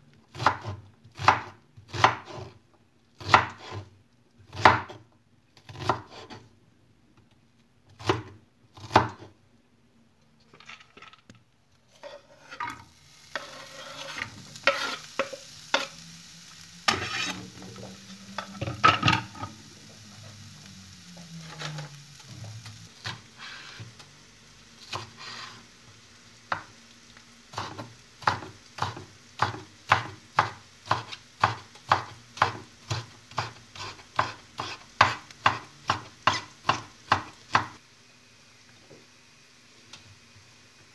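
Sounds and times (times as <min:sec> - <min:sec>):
onion sizzling in a pan: 0:00.0 - 0:06.5, 0:07.8 - 0:09.4, 0:11.8 - 0:40.9
knife chopping on wooden board: 0:00.3 - 0:02.5, 0:03.2 - 0:03.8, 0:04.5 - 0:05.0, 0:05.7 - 0:06.4, 0:27.6 - 0:37.8.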